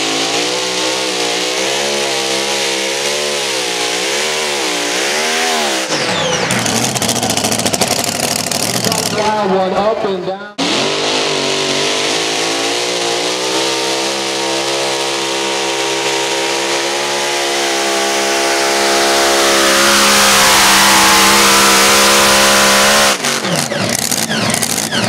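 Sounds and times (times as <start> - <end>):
tractor engine running under load: 5.9 - 9.4, 22.4 - 25.0.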